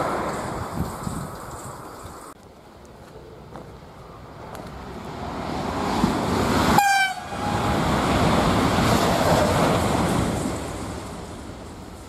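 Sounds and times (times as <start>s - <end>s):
high-speed train passing: 0.0s - 2.0s, 3.2s - 12.0s
train horn blast: 6.7s - 7.7s.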